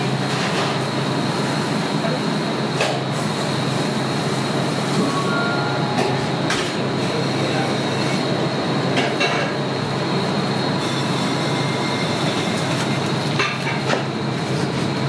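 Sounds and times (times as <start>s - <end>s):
rushing hum: 4.1s - 8.9s.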